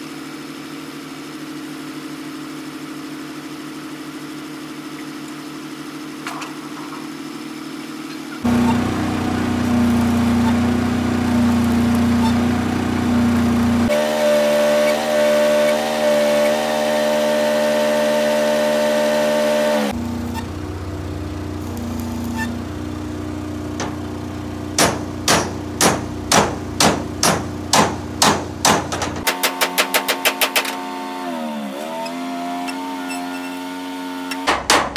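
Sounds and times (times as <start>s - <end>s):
droning machine hum: 0.0s - 29.4s
hammer striking steel plate: 24.8s - 30.7s.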